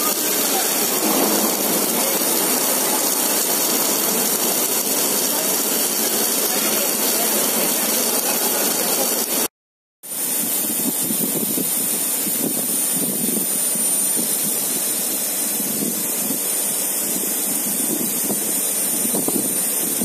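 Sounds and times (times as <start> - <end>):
thin high whine: 0.0 - 7.0
rushing machinery noise: 0.0 - 9.5.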